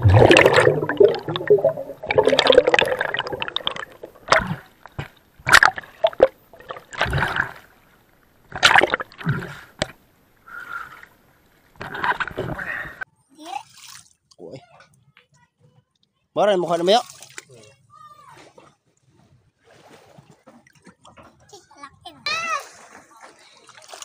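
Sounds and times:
water bubbling and gurgling: 0.0 - 10.1, 11.7 - 13.0
water splashes: 0.0 - 13.0, 16.6 - 21.5, 22.3 - 24.0.

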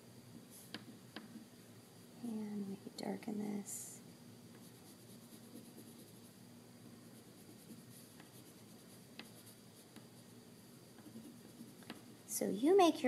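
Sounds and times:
crayon scratching on paper: 4.6 - 6.3, 7.0 - 10.4, 11.0 - 12.1.

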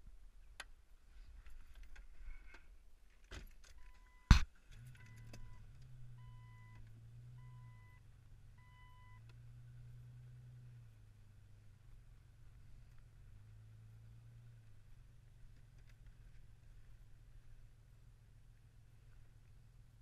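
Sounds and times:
low steady hum: 0.0 - 20.0
car warning chime beeping: 3.8 - 9.3.

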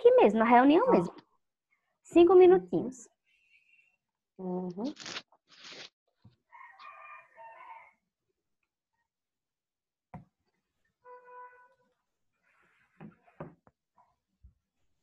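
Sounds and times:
rooster crowing: 6.5 - 8.0.

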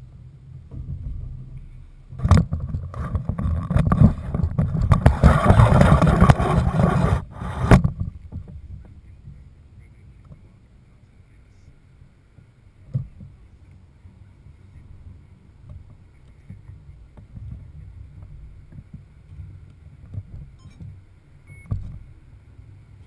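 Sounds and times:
wind buffeting microphone: 0.0 - 9.5
wind thumps on microphone: 0.0 - 9.5, 15.6 - 21.0, 21.6 - 22.2.

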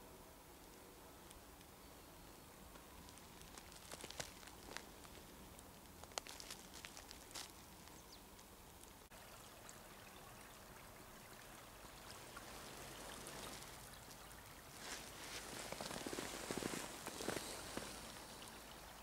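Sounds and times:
small stream running: 0.0 - 19.0.

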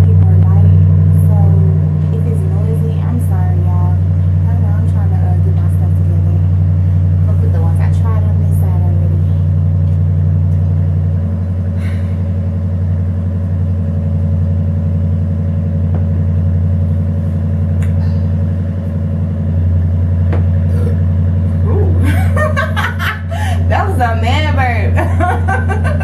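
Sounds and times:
loud low electrical hum: 0.0 - 26.0.

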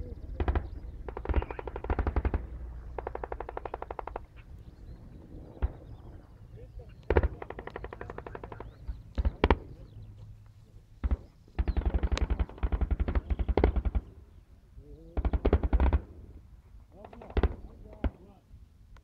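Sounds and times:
automatic gunfire: 0.4 - 4.3, 7.1 - 9.7, 11.0 - 14.2, 15.2 - 16.1.

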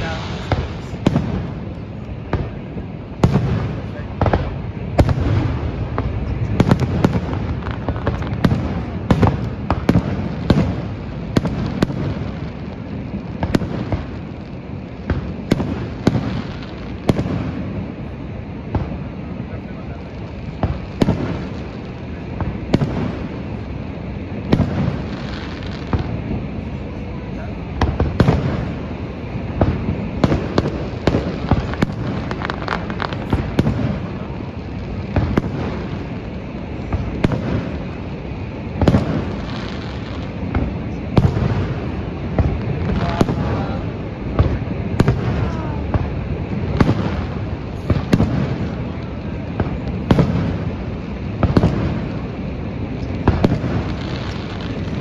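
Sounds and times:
fireworks booms and bangs: 0.0 - 55.0
fireworks whistling: 0.0 - 55.0
low background rumble: 0.0 - 55.0.

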